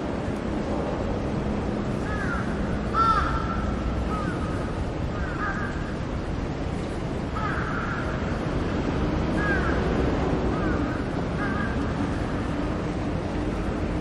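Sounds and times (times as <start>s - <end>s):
outdoor background noise: 0.0s - 14.0s
crows cawing: 2.0s - 6.0s, 7.3s - 8.4s, 9.4s - 9.9s, 10.5s - 12.2s.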